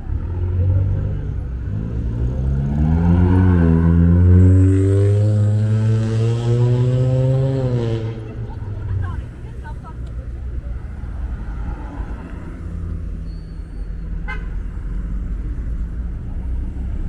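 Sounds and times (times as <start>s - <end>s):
vehicle engine accelerating: 0.0s - 9.2s
low traffic rumble: 0.0s - 17.0s.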